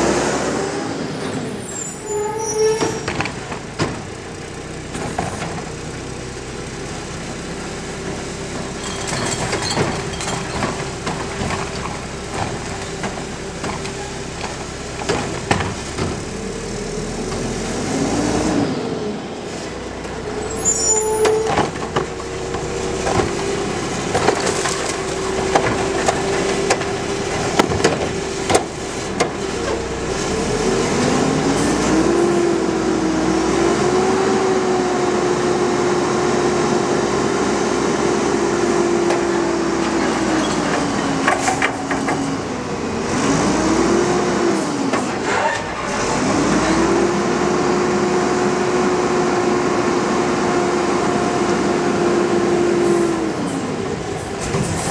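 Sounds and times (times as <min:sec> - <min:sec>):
diesel truck engine revving: 0:00.0 - 0:54.9
metal knocks and clanks: 0:08.5 - 0:16.4, 0:39.1 - 0:42.4.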